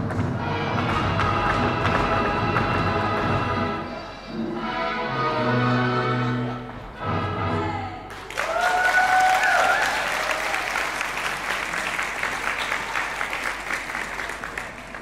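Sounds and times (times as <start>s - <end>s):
folk-dance music: 0.0s - 8.1s
person cheering: 7.8s - 10.8s
audience applause: 8.1s - 15.0s.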